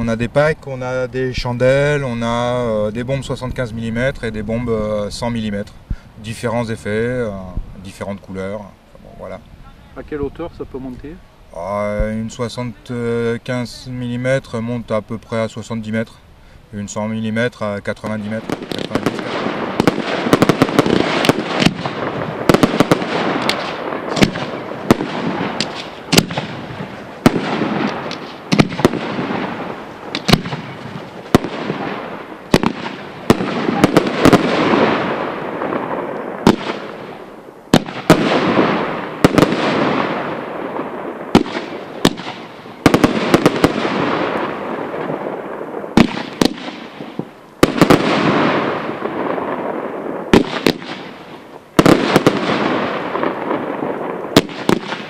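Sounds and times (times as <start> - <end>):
crackling rumble: 0.0 - 55.0
fireworks bursting with sharp bangs: 11.9 - 55.0.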